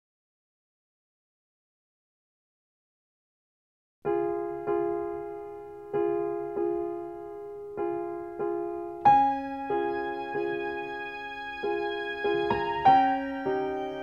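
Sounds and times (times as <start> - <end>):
electric piano chords: 4.1 - 14.0.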